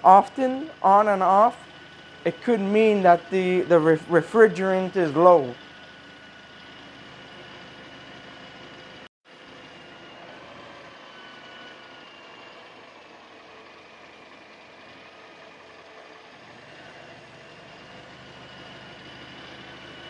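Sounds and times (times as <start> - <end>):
car engine idling: 0.0 - 10.5.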